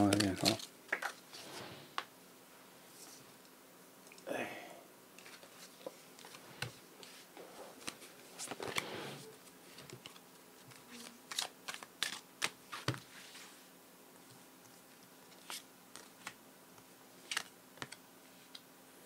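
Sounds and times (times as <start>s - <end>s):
cards set down clicks: 0.0s - 1.2s
cards shuffling rustle: 0.0s - 1.4s, 5.2s - 13.6s, 15.2s - 16.4s, 17.2s - 18.6s.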